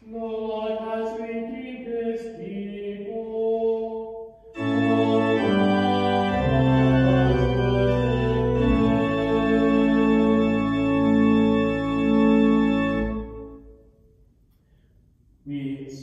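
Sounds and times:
singing with organ: 4.6s - 13.6s
deep organ pedal bass notes: 4.6s - 13.8s
organ chords: 4.6s - 13.9s.

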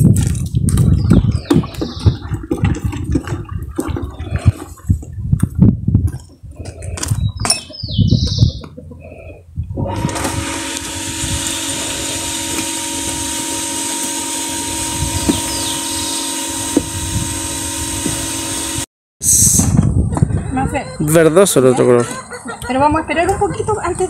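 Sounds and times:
water sloshing in a pot: 0.8s - 5.1s
machine hum with hiss: 9.8s - 19.6s.

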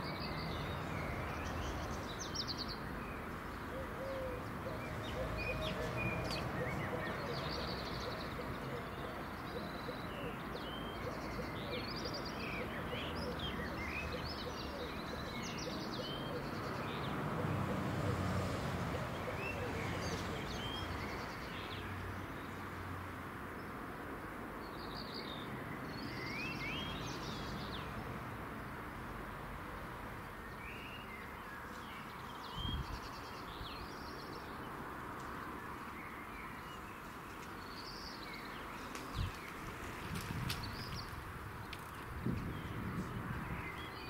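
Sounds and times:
small birds chirping: 30.3s - 44.0s.

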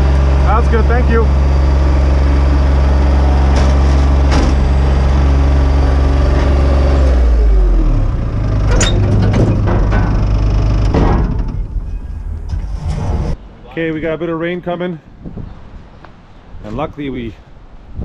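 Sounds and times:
metal ramps clanking: 0.0s - 7.2s, 8.0s - 13.4s
loader engine revving: 0.0s - 13.4s.

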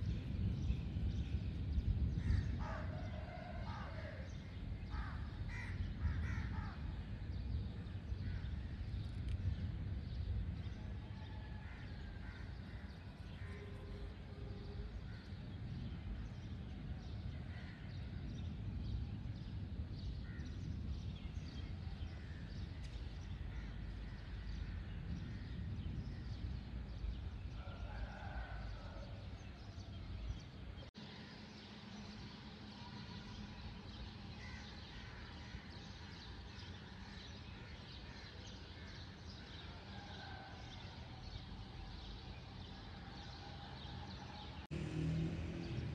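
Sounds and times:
steady low rumble: 0.0s - 27.6s
birds calling: 2.2s - 9.3s, 30.2s - 39.5s.

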